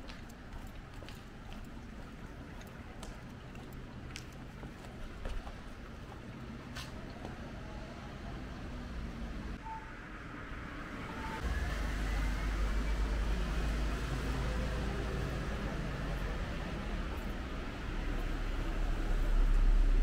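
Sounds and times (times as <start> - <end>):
cars passing on wet road: 11.0 - 20.0.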